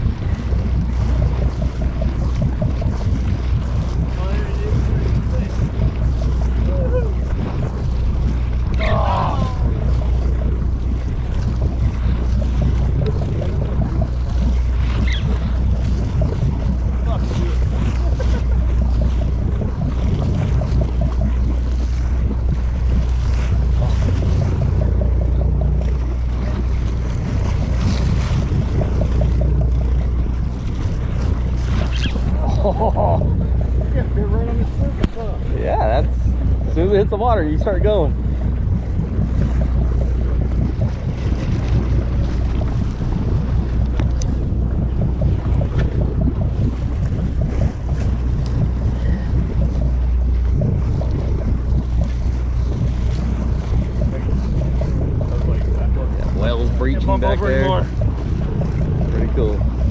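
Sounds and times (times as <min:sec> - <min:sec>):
boat engine droning: 0:00.0 - 0:59.9
water noise: 0:00.0 - 0:59.9
wind on microphone: 0:00.0 - 0:59.9
spinning reel ticking: 0:35.9 - 0:59.9.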